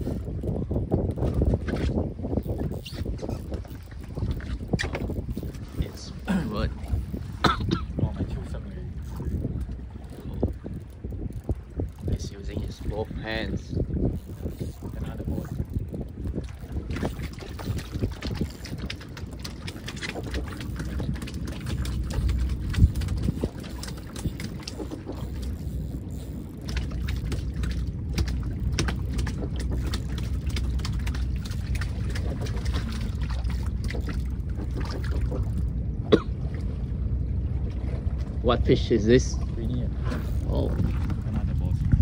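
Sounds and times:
low wind rumble: 0:00.0 - 0:42.0
water sloshing against boat hull: 0:00.0 - 0:42.0
fishing reel ticking: 0:02.3 - 0:06.1, 0:09.0 - 0:34.1, 0:40.0 - 0:40.8.

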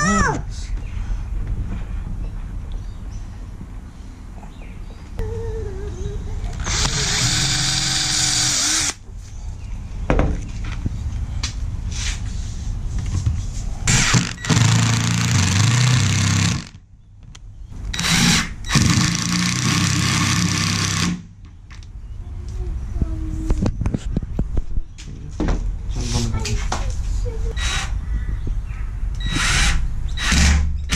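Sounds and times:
cordless drill boring into wood: 0:06.6 - 0:09.0, 0:13.9 - 0:16.7, 0:18.0 - 0:21.2, 0:29.2 - 0:30.6.

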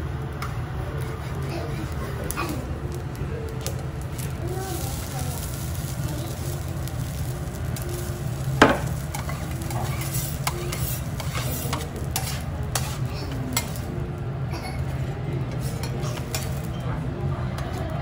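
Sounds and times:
light sizzle: 0:00.0 - 0:18.0
steel spatulas scraping griddle: 0:06.3 - 0:14.0, 0:14.8 - 0:16.8.

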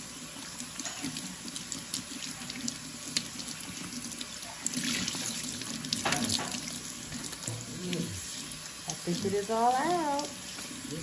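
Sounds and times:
faucet running into metal sink: 0:00.0 - 0:11.0
water splashing over hair: 0:04.2 - 0:11.0.

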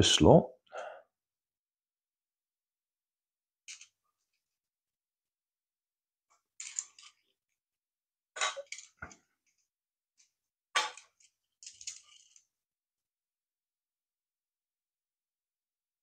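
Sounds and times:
plastic parts clicking and rattling: 0:03.7 - 0:04.4, 0:06.3 - 0:07.5, 0:08.4 - 0:09.6, 0:10.2 - 0:12.6.

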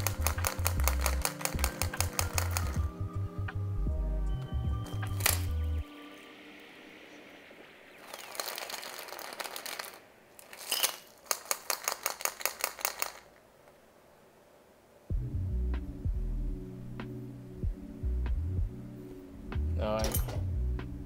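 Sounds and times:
metal shaker rattling: 0:00.0 - 0:02.9, 0:08.0 - 0:13.3.

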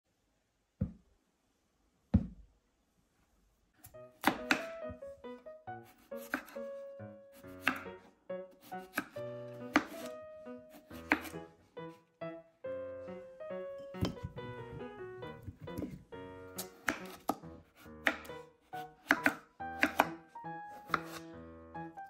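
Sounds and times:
soft piano music: 0:03.8 - 0:22.0
knife chopping on cutting board: 0:04.2 - 0:05.0, 0:05.9 - 0:06.7, 0:07.4 - 0:07.9, 0:08.7 - 0:10.1, 0:10.8 - 0:11.4, 0:14.0 - 0:14.8, 0:16.6 - 0:18.4, 0:19.0 - 0:20.2, 0:20.8 - 0:21.3.

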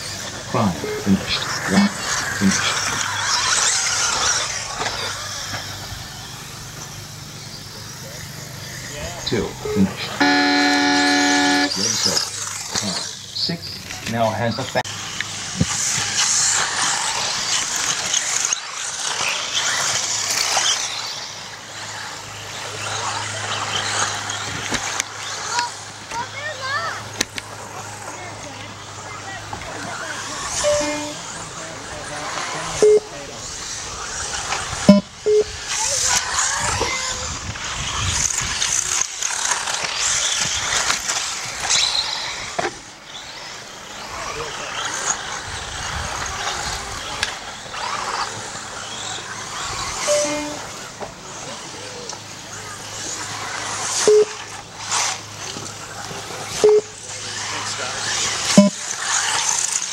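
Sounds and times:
rc cars whirring: 0:00.0 - 0:59.9
short electronic beeps: 0:09.6 - 0:11.8, 0:30.6 - 0:31.1, 0:32.8 - 0:33.1, 0:34.9 - 0:35.5, 0:50.0 - 0:50.6, 0:54.1 - 0:54.4, 0:56.6 - 0:57.0, 0:58.6 - 0:58.8
tyres hissing on gravel: 0:11.6 - 0:34.8, 0:35.5 - 0:59.9.

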